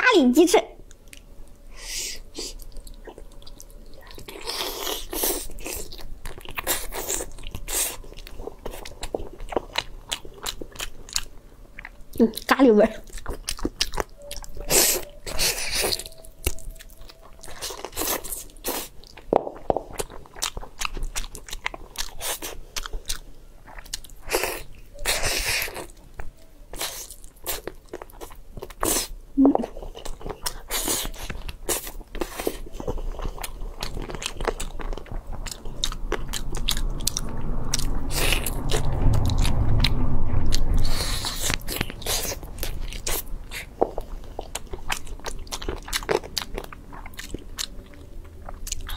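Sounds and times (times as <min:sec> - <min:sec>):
wet bites and chewing: 0:02.4 - 0:12.0.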